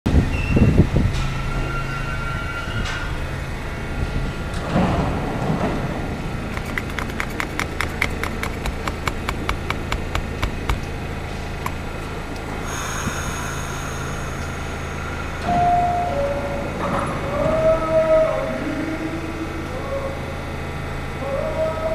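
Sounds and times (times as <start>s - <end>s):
subway car equipment hum: 0.1s - 7.6s, 8.2s - 21.9s
sharp clicks: 6.5s - 10.9s
knocks: 6.6s - 10.9s.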